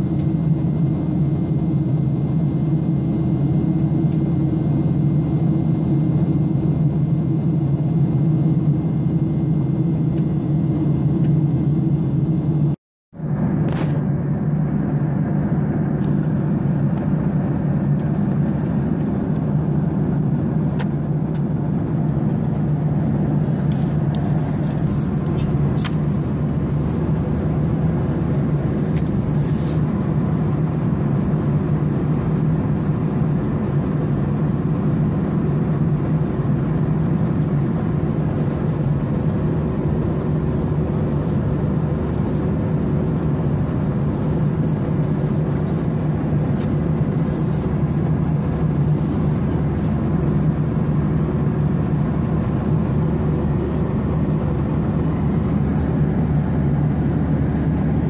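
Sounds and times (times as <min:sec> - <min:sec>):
airliner cabin jet engine drone: 0:00.0 - 0:58.0
paper menu rustling: 0:23.7 - 0:26.4.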